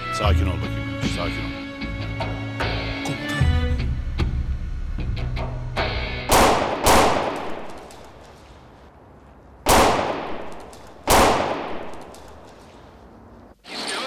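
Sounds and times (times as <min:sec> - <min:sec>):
background music: 0:00.0 - 0:07.4
loud echoing gunshots: 0:06.3 - 0:08.2, 0:09.6 - 0:12.7.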